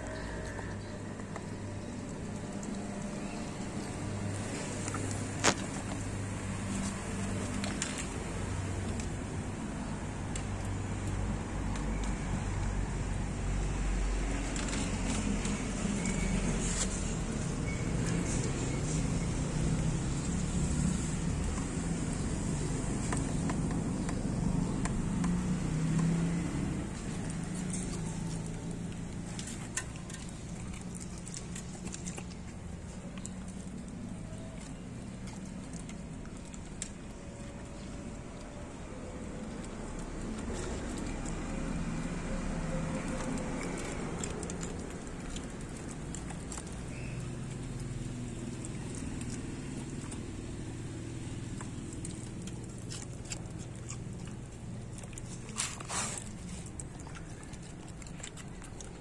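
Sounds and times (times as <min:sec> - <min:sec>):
dog chewing and smacking: 0:00.0 - 0:59.0.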